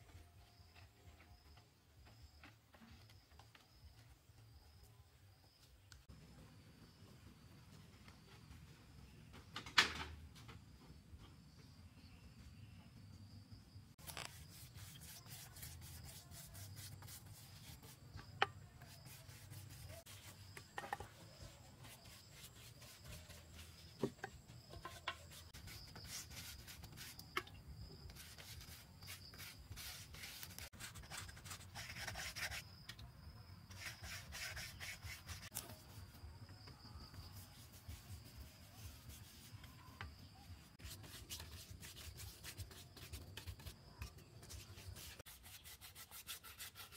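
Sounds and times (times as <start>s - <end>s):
hands scraping and rubbing: 14.0s - 27.5s, 37.4s - 39.8s.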